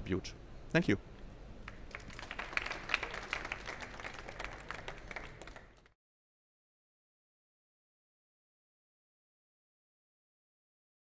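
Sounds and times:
audience applauding: 0:01.7 - 0:05.9.

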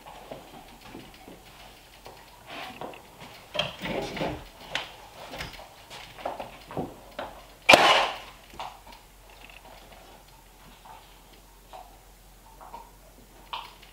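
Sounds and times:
nail gun firing: 0:07.7 - 0:08.4.

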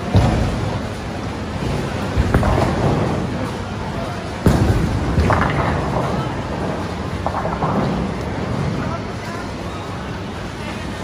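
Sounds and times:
bowling balls rumbling on lanes: 0:00.0 - 0:11.0
people chattering: 0:00.0 - 0:11.0
bowling pins crashing: 0:01.6 - 0:03.8, 0:04.4 - 0:08.8.

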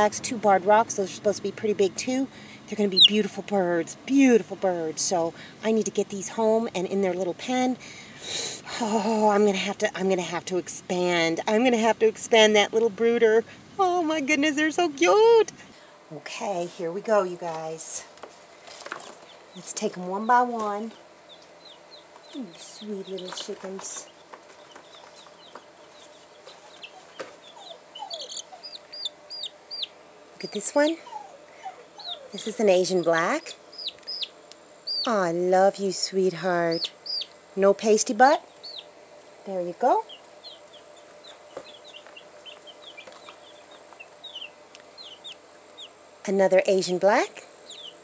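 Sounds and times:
baby chicks peeping: 0:02.0 - 0:03.6, 0:18.6 - 0:35.4, 0:36.3 - 0:39.0, 0:39.6 - 0:46.1, 0:47.6 - 0:48.0
lower falling calls: 0:02.8 - 0:03.5, 0:19.1 - 0:35.4, 0:36.0 - 0:39.0, 0:39.8 - 0:46.1, 0:47.5 - 0:48.0.

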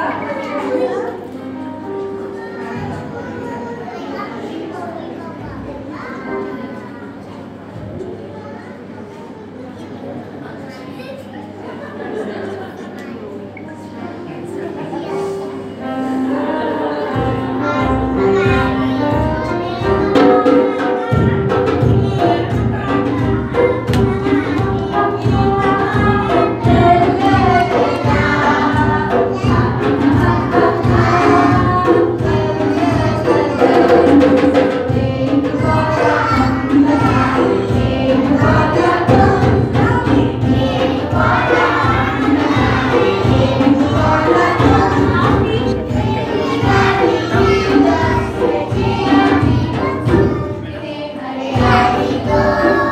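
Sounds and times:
live band accompaniment: 0:13.7 - 0:50.7, 0:51.5 - 0:52.9
children singing together: 0:13.7 - 0:52.9.

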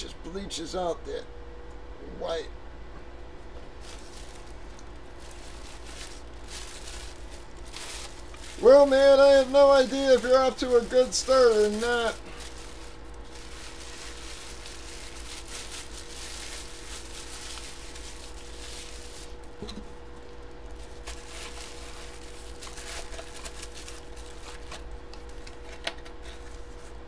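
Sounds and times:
steady faint hum: 0:00.0 - 0:27.0
cardboard box rustling: 0:03.8 - 0:08.8, 0:20.8 - 0:26.9.

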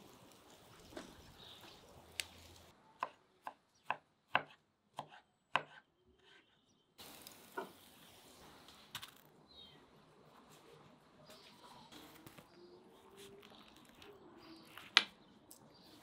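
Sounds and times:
knife chopping on wooden board: 0:03.0 - 0:06.4.

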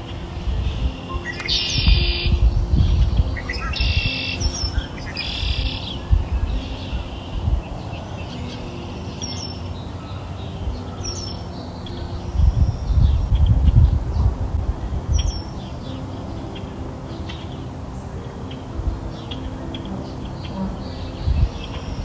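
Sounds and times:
steady low rumble: 0:00.0 - 0:08.6, 0:11.7 - 0:17.1, 0:17.7 - 0:22.0
birds chirping: 0:00.0 - 0:22.0.

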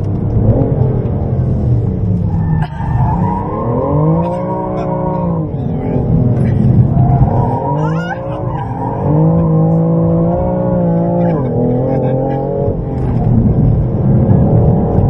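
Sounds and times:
car engine revving: 0:00.0 - 0:15.0
tyre squeal: 0:06.9 - 0:09.8.

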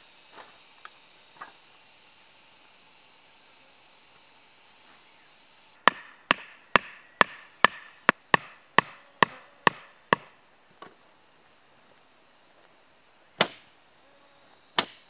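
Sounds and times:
wooden stake being hammered: 0:05.8 - 0:10.4, 0:13.4 - 0:13.7, 0:14.8 - 0:15.0.

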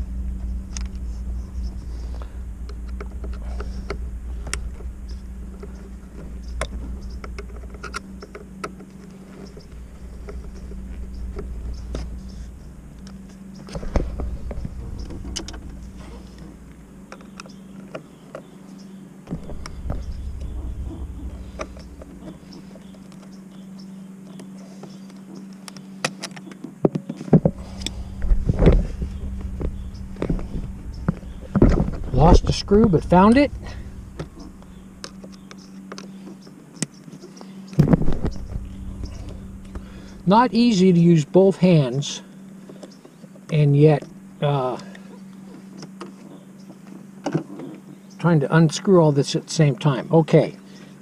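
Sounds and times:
steady low rumble: 0:00.0 - 0:25.9, 0:27.4 - 0:36.7, 0:37.4 - 0:42.8
faint steady hum: 0:00.0 - 0:51.0.

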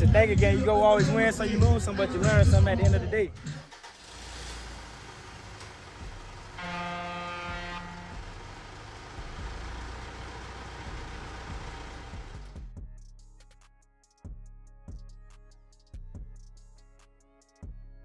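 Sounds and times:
truck engine rumbling: 0:00.0 - 0:12.8
truck horn blast: 0:06.0 - 0:09.9.

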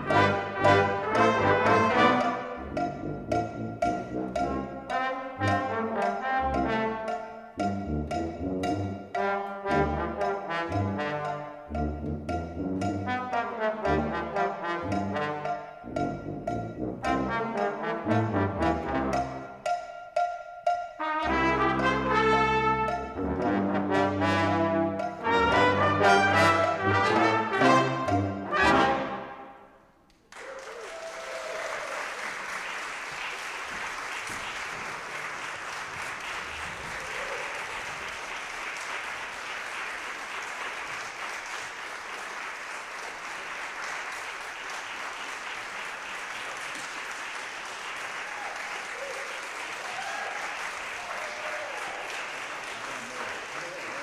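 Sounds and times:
brass ensemble chord: 0:00.0 - 0:19.5, 0:21.0 - 0:29.6
audience applause: 0:30.2 - 0:54.0.

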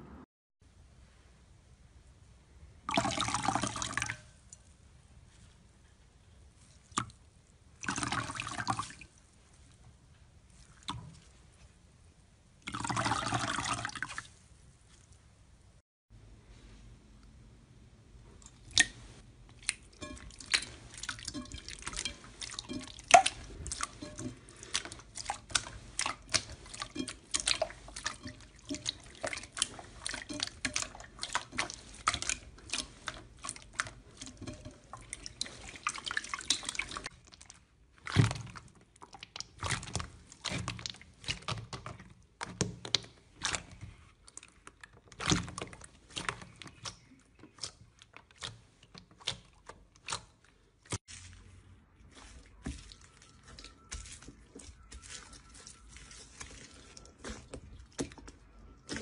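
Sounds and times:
hands squishing thick slime: 0:18.4 - 0:59.0.

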